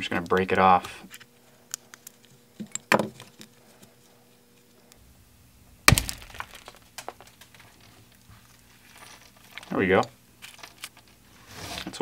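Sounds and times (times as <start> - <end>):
glass cracking and clicking: 5.9 - 7.5.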